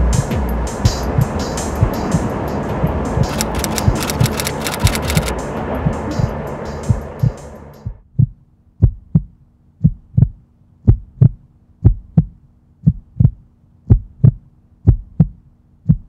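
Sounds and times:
music: 0.0 - 8.0
heartbeat thumps: 1.0 - 2.1, 2.8 - 16.0.

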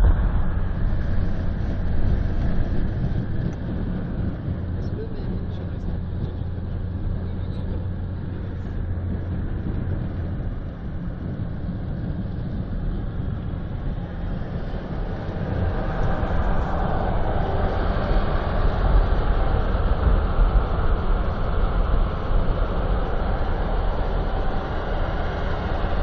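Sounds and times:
road and engine drone in car: 0.0 - 26.0.

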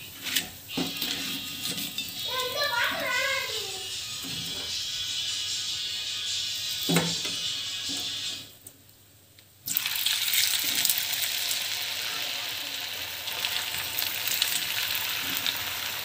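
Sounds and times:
loud sizzle with small crackles: 0.0 - 16.0
food deep-frying in hot oil: 9.6 - 16.0.

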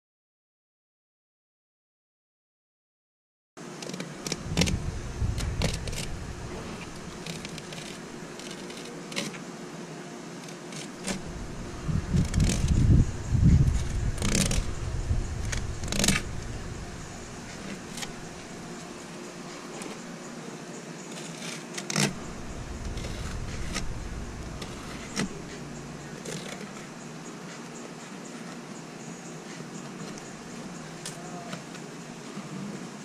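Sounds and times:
low rumbling: 4.3 - 8.4, 11.0 - 19.5, 22.1 - 26.3.

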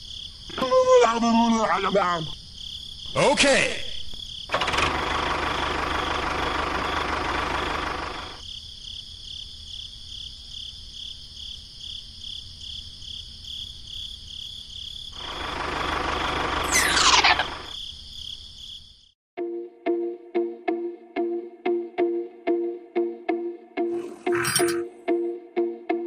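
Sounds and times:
toy tractor running: 4.5 - 8.4
pulsing high chirping: 16.2 - 17.8.

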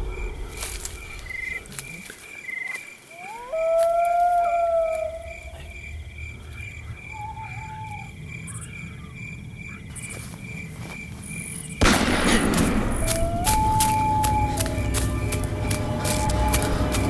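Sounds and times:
crickets chirping: 0.0 - 17.0
loud rushing noise: 11.8 - 17.0.

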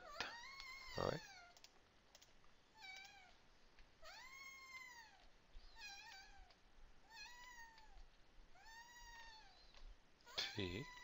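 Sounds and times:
faint cat meows: 0.0 - 1.6, 4.0 - 9.6, 10.2 - 11.0.

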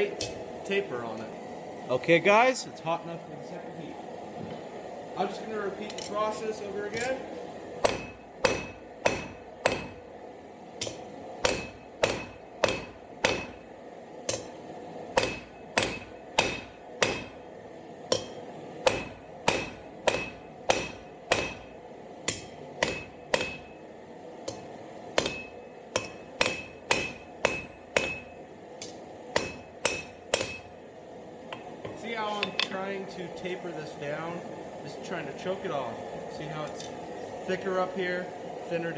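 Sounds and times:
hammer striking steel on anvil: 5.9 - 6.3, 7.8 - 10.0, 10.8 - 13.6, 14.3 - 14.6, 15.2 - 17.4, 18.1 - 23.8, 24.4 - 30.8, 31.5 - 32.9.

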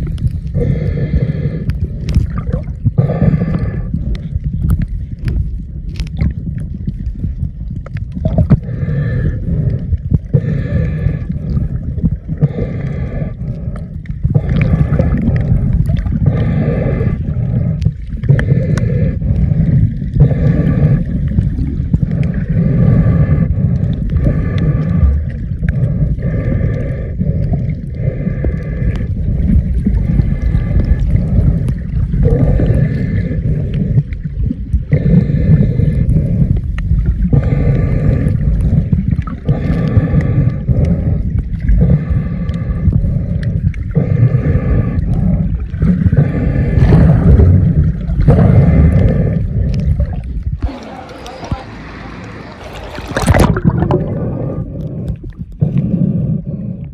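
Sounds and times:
underwater rumble and gurgling: 0.0 - 56.9
muffled pitched pulses: 29.1 - 56.9.

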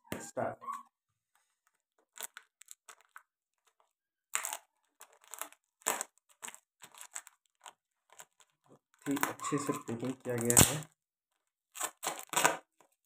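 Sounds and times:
packing tape ripping: 4.3 - 10.9, 11.7 - 12.9.

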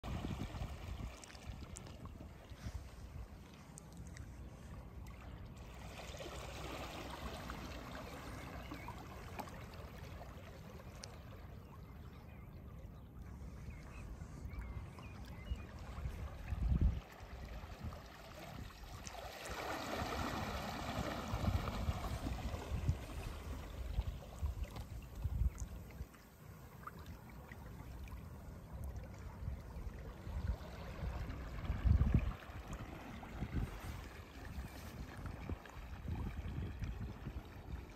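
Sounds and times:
wind rumble on microphone: 0.0 - 4.7, 13.3 - 19.1, 19.8 - 26.2, 28.8 - 37.9
water lapping against hulls: 0.0 - 37.9.

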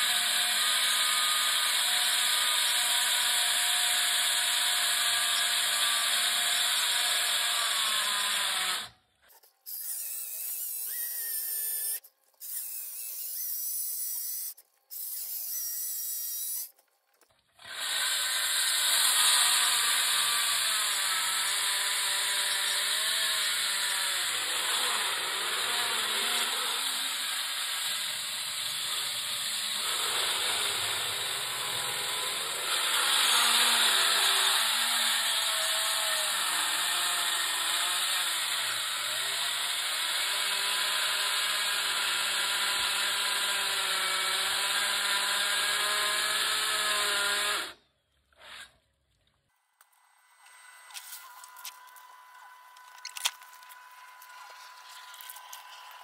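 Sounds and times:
saw grinding concrete: 0.0 - 16.8, 17.5 - 48.9, 50.4 - 56.0.

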